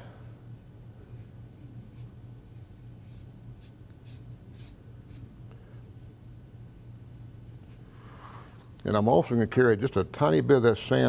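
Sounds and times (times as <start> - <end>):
faint low hum: 0.0 - 11.0
brush stroking paper: 6.8 - 7.8.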